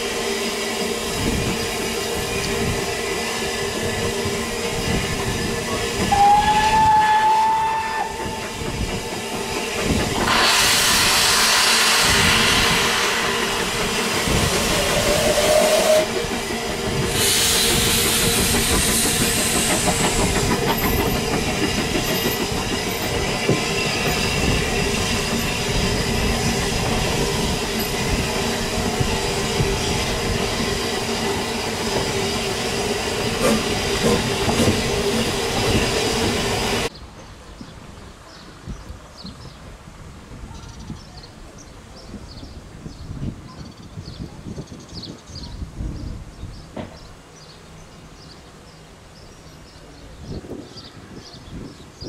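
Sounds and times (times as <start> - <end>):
steam hissing: 0.0 - 36.9
train wheels rumbling on rails: 0.0 - 52.0.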